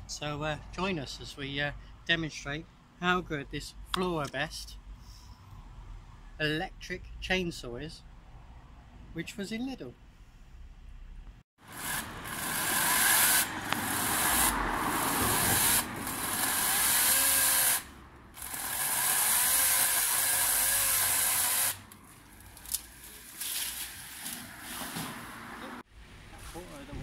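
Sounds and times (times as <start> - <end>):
chainsaw cutting branches: 11.6 - 24.5.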